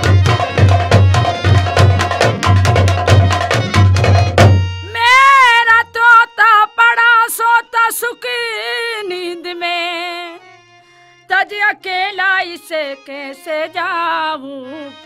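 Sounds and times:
fast hand-drum strokes: 0.0 - 4.7
woman singing wordless melody: 4.8 - 10.5, 11.2 - 15.0.

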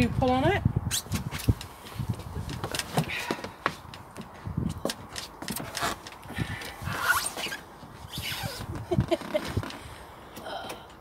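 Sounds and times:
wind on microphone: 0.0 - 10.0
clicks and knocks on a yacht: 1.1 - 6.8.

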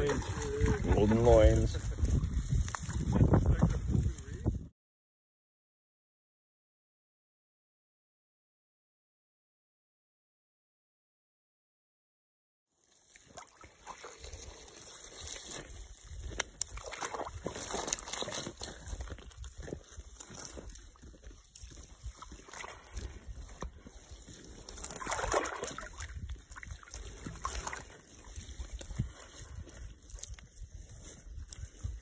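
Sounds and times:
water sloshing in ice hole: 0.0 - 3.3, 12.8 - 30.4.

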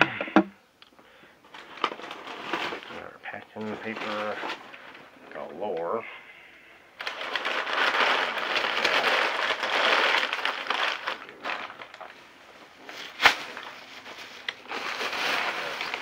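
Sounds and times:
paper crumpling and rustling: 1.5 - 5.1, 7.0 - 16.0.

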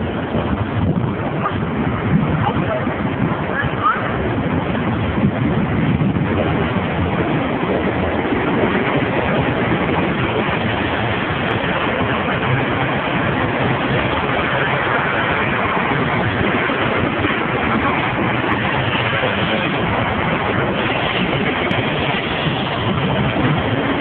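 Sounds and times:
busy city street traffic: 0.0 - 24.0.

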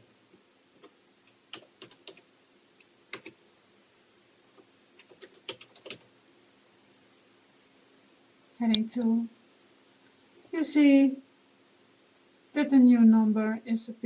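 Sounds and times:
computer keyboard typing: 0.8 - 2.3, 3.1 - 3.4, 5.0 - 6.1.

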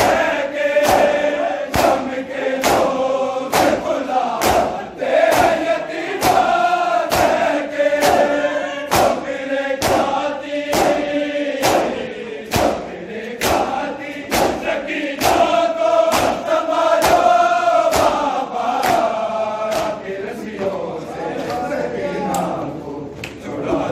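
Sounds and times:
men chanting in unison: 0.0 - 23.9
hands slapping bare chests: 0.8 - 8.3, 8.9 - 9.2, 9.8 - 17.3, 17.9 - 19.1, 19.7 - 20.0.

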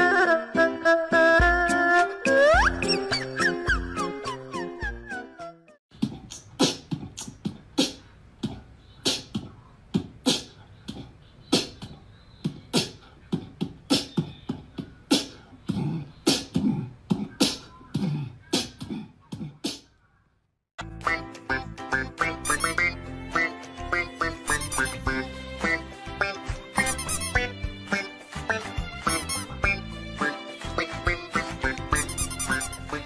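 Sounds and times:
beatbox sharp beats: 5.9 - 19.9, 21.0 - 33.0
vocal sounds: 5.9 - 19.9, 21.0 - 33.0.

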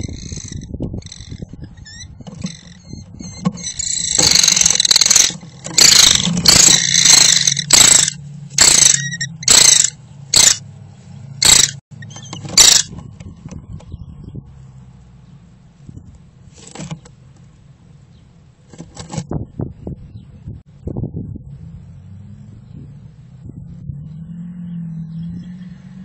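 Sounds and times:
kestrel calling: 0.0 - 10.6, 11.4 - 12.8.

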